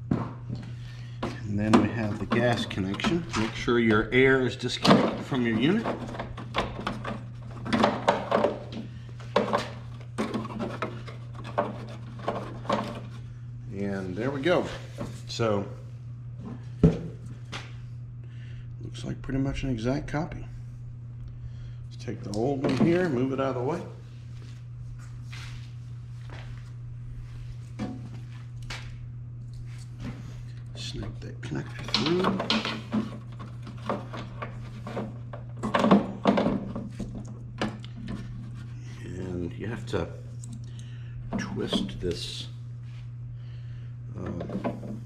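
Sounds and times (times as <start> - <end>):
steady low hum: 0.0 - 45.0
footsteps: 24.0 - 29.0.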